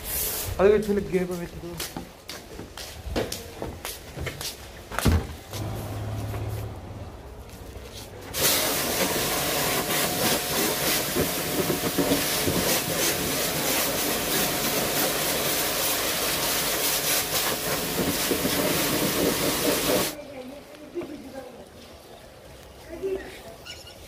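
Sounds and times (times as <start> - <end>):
pressure washer spraying water: 5.6 - 20.2.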